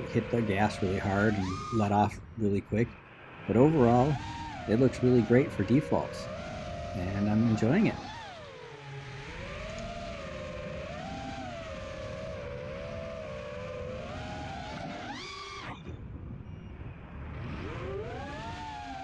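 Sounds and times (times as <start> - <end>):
wind rushing: 0.0 - 13.2
drone motors whining: 0.0 - 19.0.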